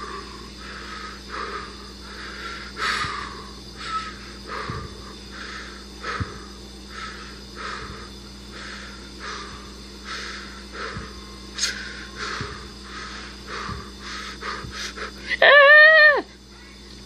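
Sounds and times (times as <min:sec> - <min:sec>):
short breathy puffs: 0:00.6 - 0:15.3
shrill scream-like jumpscare sound: 0:15.4 - 0:16.2.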